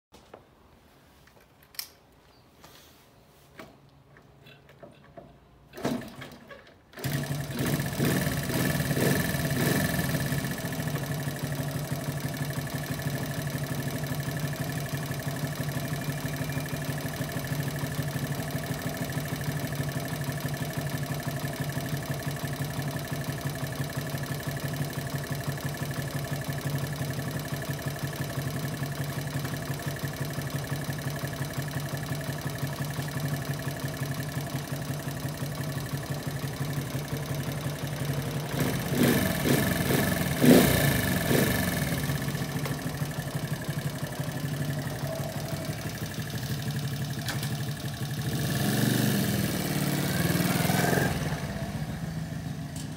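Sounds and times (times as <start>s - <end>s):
motorcycle kick-start kicks: 3.6s - 52.9s
motorcycle engine idling: 6.9s - 52.9s.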